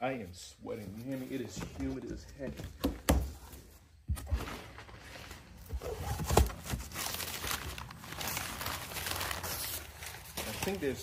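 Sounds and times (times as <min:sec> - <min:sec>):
packing paper rustling: 0:04.4 - 0:11.0.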